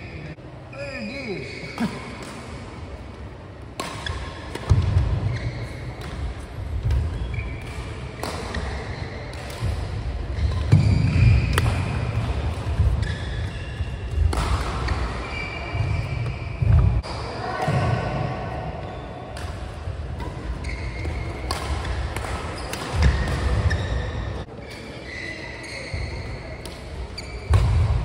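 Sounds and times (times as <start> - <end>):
racket hitting shuttlecock: 3.7 - 13.5, 14.1 - 16.9, 19.3 - 24.0
shoes squeaking on court: 3.8 - 17.0, 20.2 - 27.8.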